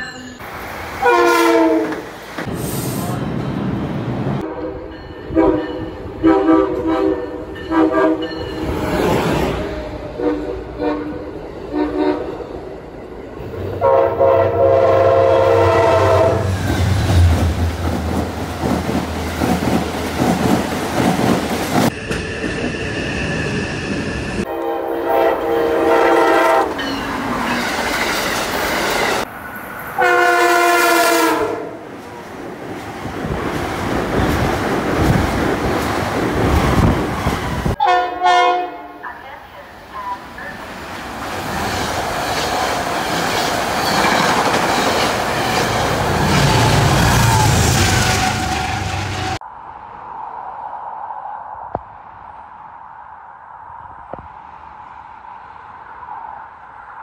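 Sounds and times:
train wheels rumbling on rails: 0:00.4 - 0:37.8, 0:40.0 - 0:49.4
train horn blasts: 0:01.0 - 0:02.0, 0:04.4 - 0:08.4, 0:09.9 - 0:12.4, 0:13.8 - 0:16.6, 0:24.5 - 0:26.8, 0:30.0 - 0:31.8, 0:37.8 - 0:39.0.

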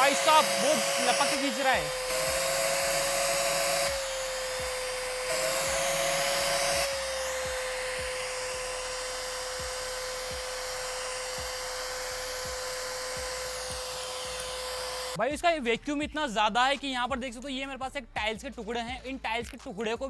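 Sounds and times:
mini vacuum cleaner whining: 0:00.0 - 0:15.2.

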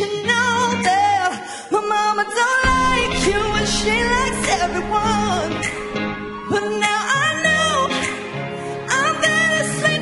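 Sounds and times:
woman singing into a microphone: 0:00.0 - 0:05.7, 0:06.4 - 0:10.0
band playing: 0:02.7 - 0:08.0.

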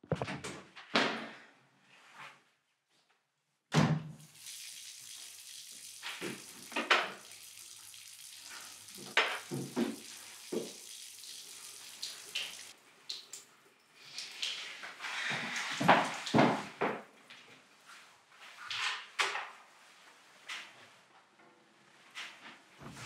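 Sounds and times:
tap running into sink: 0:05.7 - 0:11.1.

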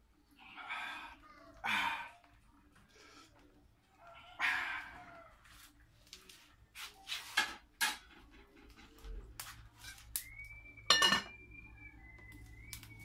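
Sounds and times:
thin steady whistle: 0:09.9 - 0:13.0
cookware clinks and knocks: 0:10.9 - 0:11.4.

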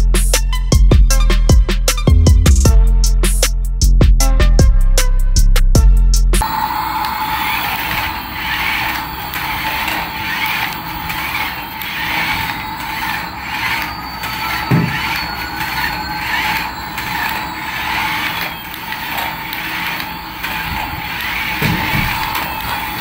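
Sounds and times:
toy gear motor whirring: 0:06.8 - 0:23.0.

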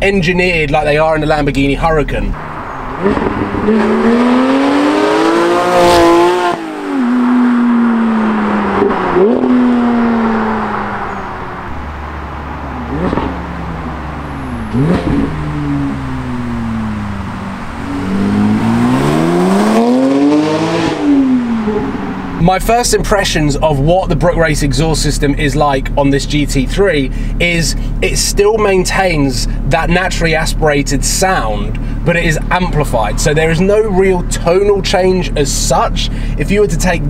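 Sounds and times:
car engine revving hard: 0:02.4 - 0:22.4.

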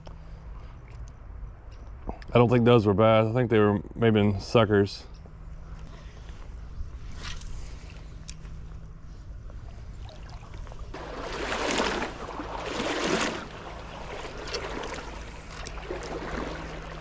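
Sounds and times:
water sloshing around wading legs: 0:07.0 - 0:17.0.

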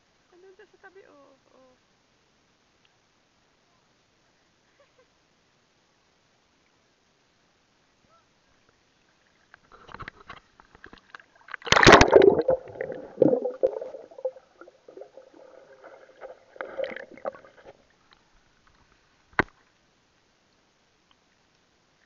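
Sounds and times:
water splashing and gurgling: 0:11.2 - 0:17.9.

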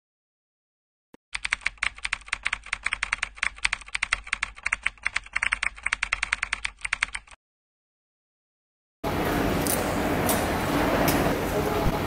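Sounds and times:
keyboard typing: 0:01.4 - 0:07.4.

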